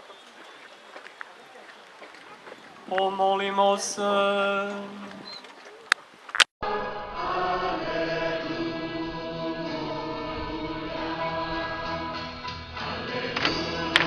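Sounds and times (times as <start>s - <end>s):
choir singing a hymn: 6.6s - 14.0s.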